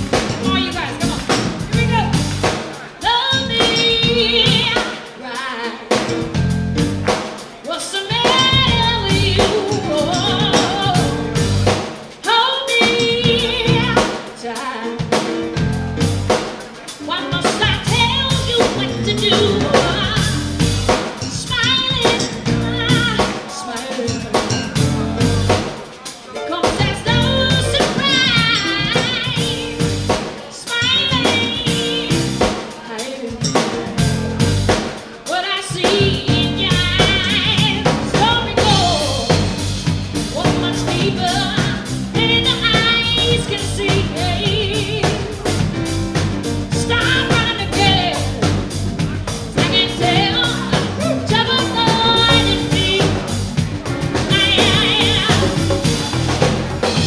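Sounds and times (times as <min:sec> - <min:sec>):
electric bass: 0:00.0 - 0:02.6, 0:03.4 - 0:04.8, 0:06.1 - 0:07.2, 0:08.3 - 0:11.9, 0:13.0 - 0:14.1, 0:15.4 - 0:16.4, 0:17.6 - 0:23.3, 0:24.1 - 0:25.7, 0:26.8 - 0:30.2, 0:30.9 - 0:32.6, 0:33.4 - 0:34.9, 0:35.9 - 0:57.0
drum kit: 0:00.0 - 0:57.0
keyboard: 0:00.0 - 0:57.0
woman singing with vibrato: 0:00.2 - 0:02.2, 0:03.0 - 0:06.2, 0:07.6 - 0:11.4, 0:12.2 - 0:15.4, 0:17.0 - 0:25.1, 0:26.4 - 0:34.3, 0:35.0 - 0:39.5, 0:40.2 - 0:45.6, 0:46.7 - 0:48.6, 0:49.5 - 0:53.6, 0:54.2 - 0:56.1.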